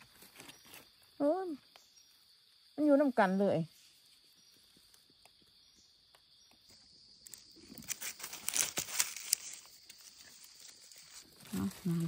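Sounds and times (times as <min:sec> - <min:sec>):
insects droning: 0:00.0 - 0:12.0
dry leaves rustling: 0:07.3 - 0:12.0.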